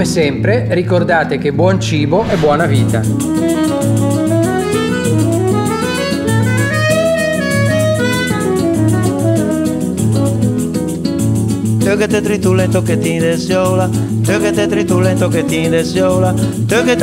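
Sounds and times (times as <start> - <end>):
acoustic guitar: 0.0 - 17.0
pulsing bass line: 2.1 - 3.4
saxophone melody: 3.1 - 10.3.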